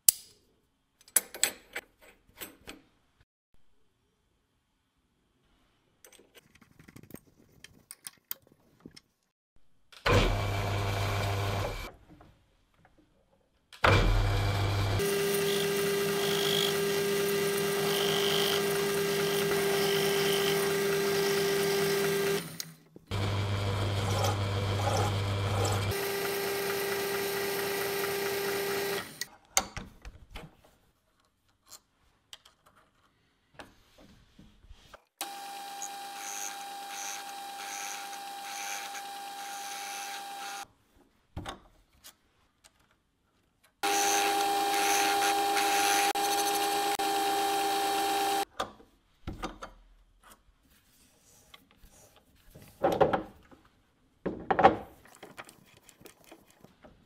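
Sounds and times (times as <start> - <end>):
metal lathe motor hum: 14.1 - 22.5, 23.1 - 29.2, 43.8 - 48.4.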